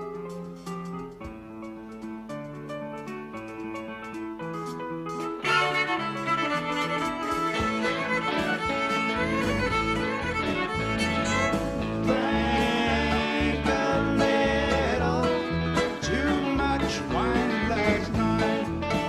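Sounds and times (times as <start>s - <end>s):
live band playing country rock: 3.4s - 19.0s
fiddle melody: 4.1s - 19.0s
deep bass line: 5.5s - 19.0s.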